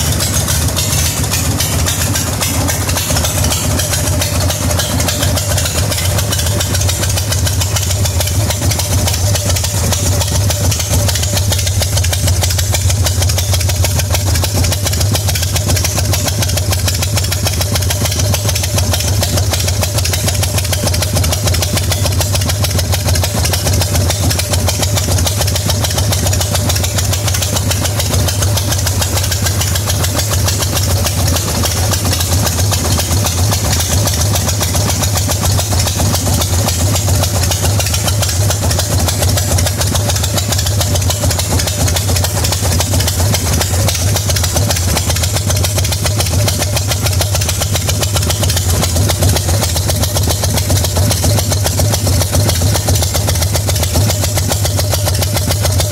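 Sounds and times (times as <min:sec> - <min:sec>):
motorcycle engine idling: 0:00.0 - 0:55.9.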